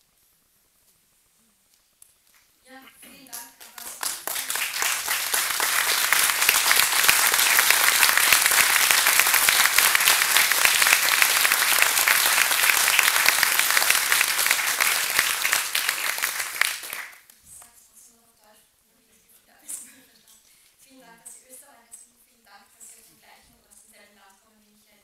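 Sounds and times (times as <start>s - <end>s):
audience applauding: 3.3s - 17.3s.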